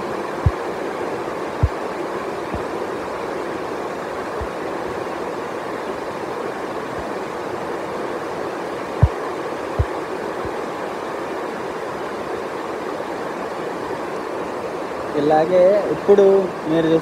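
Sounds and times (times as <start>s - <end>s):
heavy rain: 0.0s - 17.0s.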